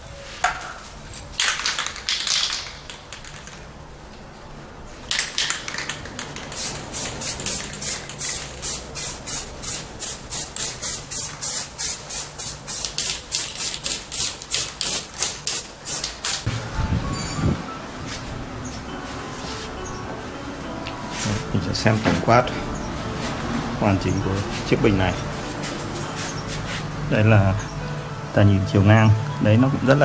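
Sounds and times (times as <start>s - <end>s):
aerosol spray can spraying: 5.7s - 16.6s.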